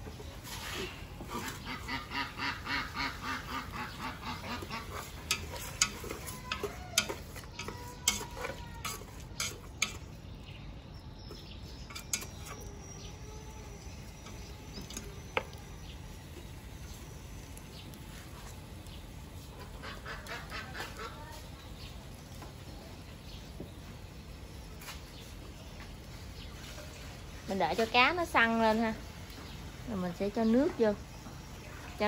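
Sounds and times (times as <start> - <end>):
poultry calling: 1.3 - 8.8, 19.6 - 21.4.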